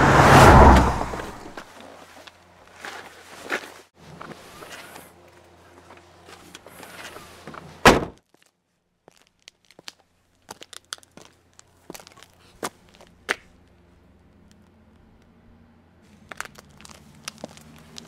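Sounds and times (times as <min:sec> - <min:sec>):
loud thump: 0:07.9 - 0:08.2.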